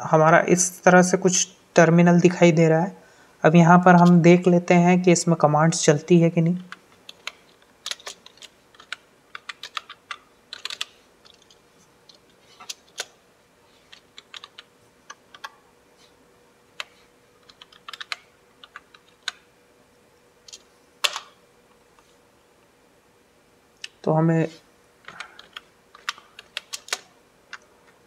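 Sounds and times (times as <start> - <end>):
slow keyboard typing: 6.6 - 15.6, 16.8 - 19.5, 20.4 - 21.4, 25.0 - 28.0.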